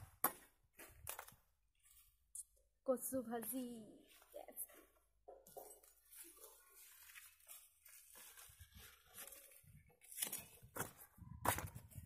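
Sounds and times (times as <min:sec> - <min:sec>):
leaves rustling and tearing: 0:05.9 - 0:10.6.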